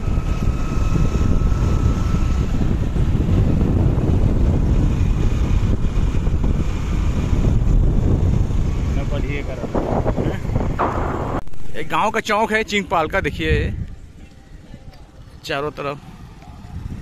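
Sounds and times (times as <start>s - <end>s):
wind rumbling on microphone: 0.0s - 15.4s, 16.0s - 17.0s.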